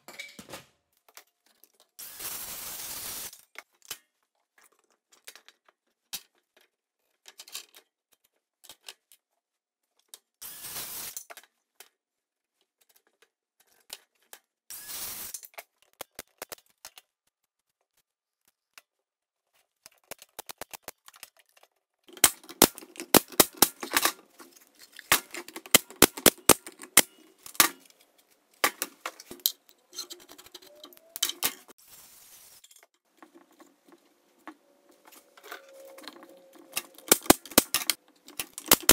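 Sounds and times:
sharp clicks and knocks of wood: 0:36.7 - 0:38.9.

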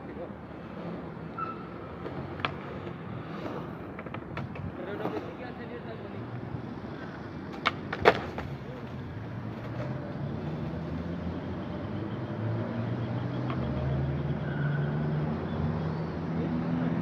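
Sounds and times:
low rumble of traffic: 0:00.0 - 0:17.0
skateboard clacking on concrete: 0:02.0 - 0:05.4, 0:06.9 - 0:10.0.

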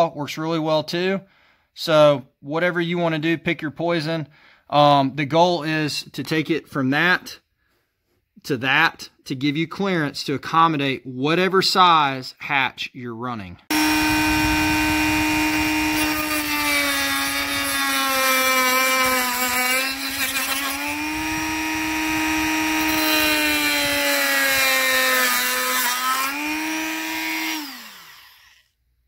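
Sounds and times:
motor spinning down: 0:13.7 - 0:16.7, 0:20.7 - 0:25.1, 0:26.2 - 0:28.6
rotary tool cutting: 0:13.7 - 0:28.7.

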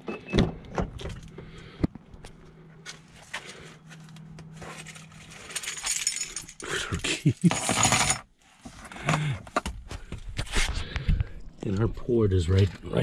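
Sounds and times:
handling and rustling: 0:02.9 - 0:06.6
car keys jangling: 0:04.9 - 0:06.6.

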